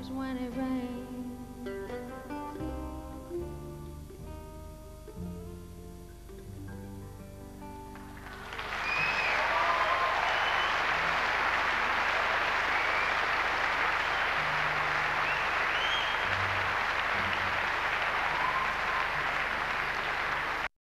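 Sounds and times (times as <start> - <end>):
audience applauding: 7.9 - 20.7.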